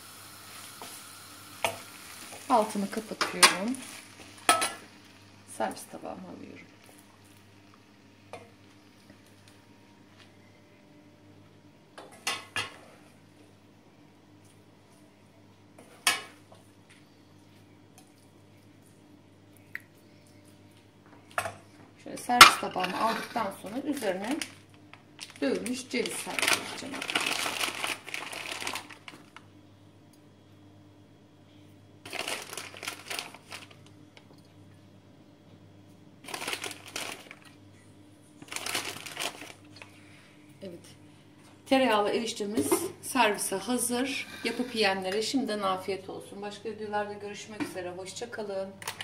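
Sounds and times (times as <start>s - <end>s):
faint steady hum: 0.0s - 49.0s
packaging crinkling: 23.9s - 29.4s, 32.0s - 33.9s, 36.2s - 37.6s, 38.4s - 39.9s.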